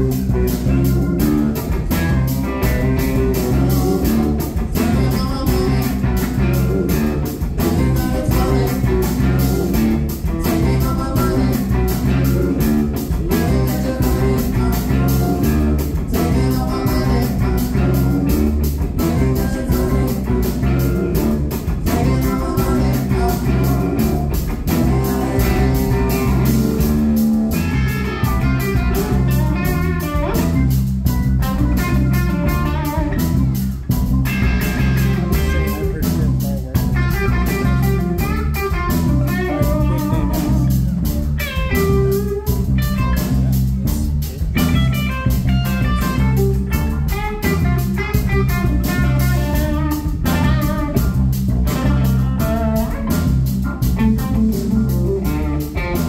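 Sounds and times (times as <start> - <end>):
person singing: 0.0 - 30.6, 34.4 - 40.9
live blues band: 0.0 - 56.0.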